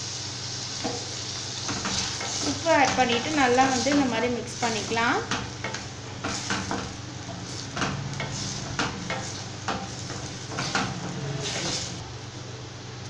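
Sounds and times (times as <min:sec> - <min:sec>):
food sizzling in oil: 0:00.0 - 0:12.1
wooden spatula scraping a pan: 0:01.7 - 0:12.0.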